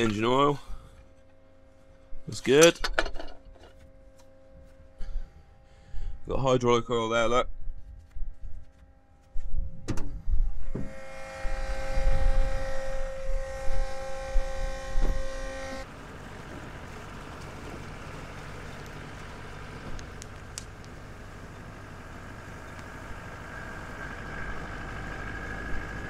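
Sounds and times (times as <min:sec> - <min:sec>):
farm machinery engine running: 0:13.5 - 0:26.0.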